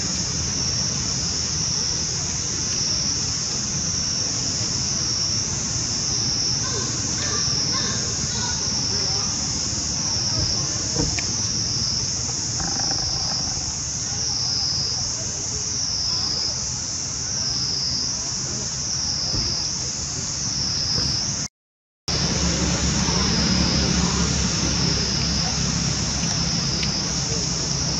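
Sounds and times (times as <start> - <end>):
high-pitched insect chorus: 0.0 - 21.4, 22.1 - 27.9.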